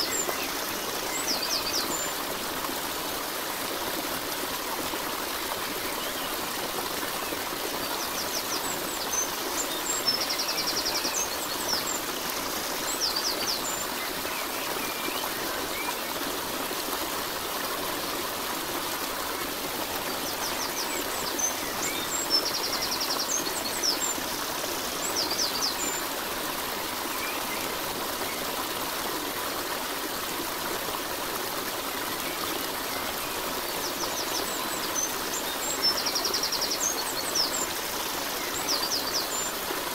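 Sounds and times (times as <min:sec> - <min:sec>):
running water: 0:00.0 - 0:39.9.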